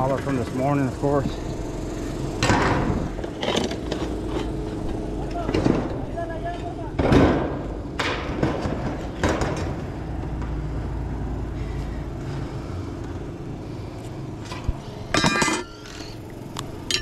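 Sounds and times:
metallic clatter of tools: 15.1 - 16.2.

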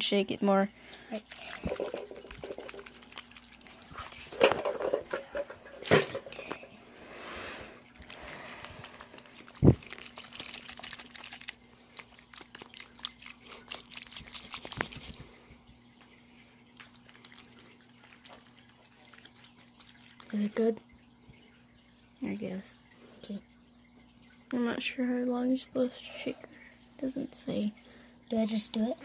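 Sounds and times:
water sloshing in plastic toy: 0.8 - 6.8, 7.8 - 27.7.

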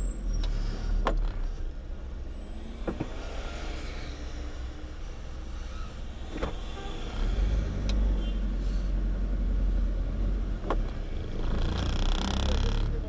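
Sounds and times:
truck engine rumble: 4.2 - 13.0.

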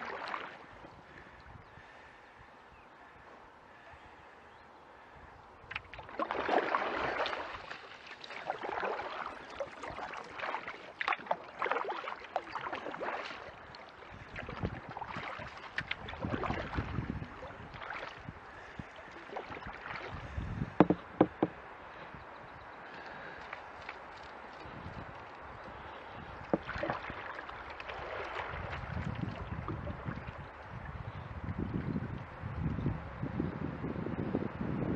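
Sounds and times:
paddle splashing water: 0.0 - 2.2, 5.6 - 22.2, 22.8 - 31.2
paddle knocks: 20.7 - 21.6, 26.5 - 27.2.

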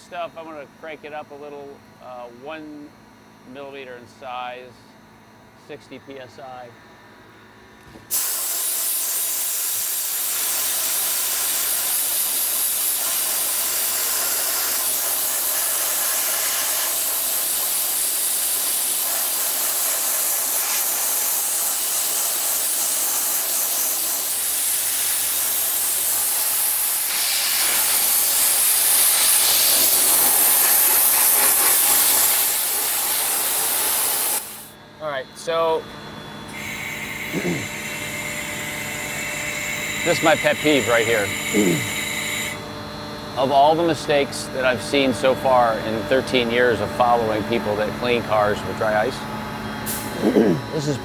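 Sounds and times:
dry ice blasting hiss: 8.0 - 34.8, 36.5 - 42.6, 43.4 - 49.1, 49.8 - 51.0.

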